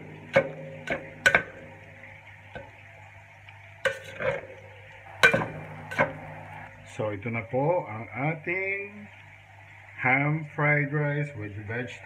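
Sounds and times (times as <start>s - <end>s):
spatula clanking against steel pan: 0.0s - 1.9s, 3.8s - 4.4s, 5.2s - 6.3s.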